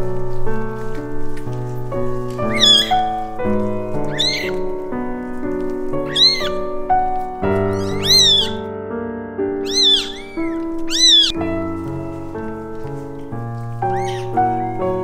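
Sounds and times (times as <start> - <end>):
background music: 0.0 - 15.0
kitten mewing: 2.5 - 3.2, 4.0 - 4.6, 6.0 - 6.6, 7.7 - 8.6, 9.6 - 11.4, 13.9 - 14.7.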